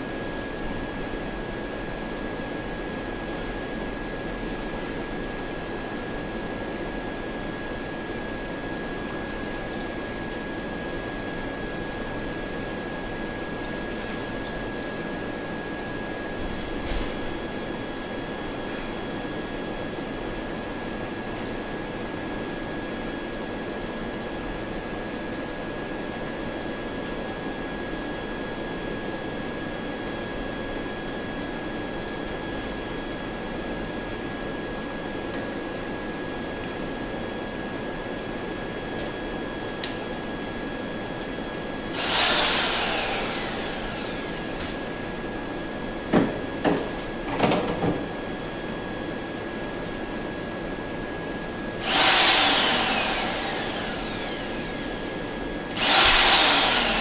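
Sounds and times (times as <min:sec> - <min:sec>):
electric mixer motor whining: 0:41.9 - 0:45.2, 0:51.8 - 0:57.0.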